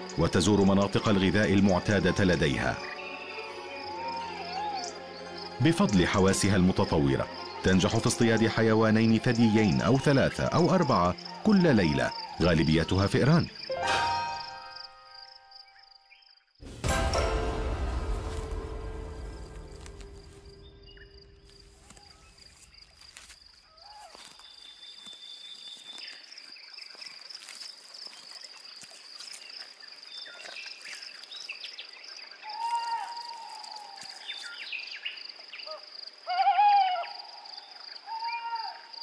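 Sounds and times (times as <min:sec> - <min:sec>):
high-pitched insect trill: 0:00.1 - 0:16.4, 0:18.2 - 0:36.1
owl hooting: 0:03.3 - 0:05.1, 0:32.4 - 0:34.2, 0:35.7 - 0:38.9
small birds chirping: 0:20.3 - 0:36.1.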